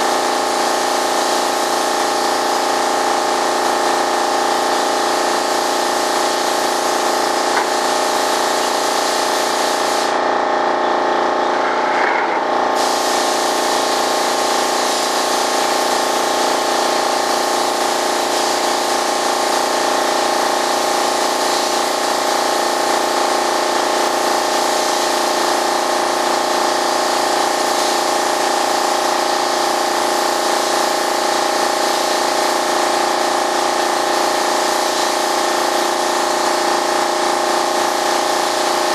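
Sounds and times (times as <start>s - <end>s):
spray gun hissing: 0.0s - 10.2s, 12.7s - 38.9s
machine hum: 7.1s - 13.2s.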